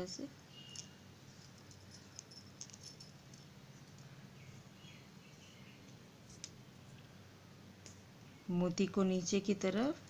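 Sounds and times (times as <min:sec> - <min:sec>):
low steady hum: 0:00.0 - 0:10.0
beads and crochet hook clicking: 0:00.7 - 0:04.1.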